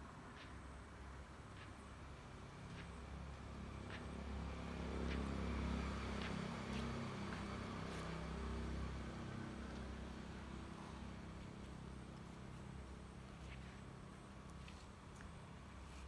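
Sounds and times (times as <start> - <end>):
vehicle engine passing by: 2.7 - 12.9.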